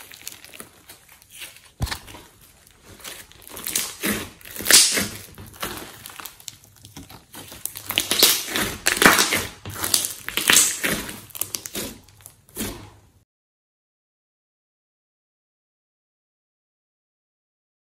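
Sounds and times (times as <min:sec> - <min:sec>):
slime squelching and popping: 0:00.0 - 0:12.9.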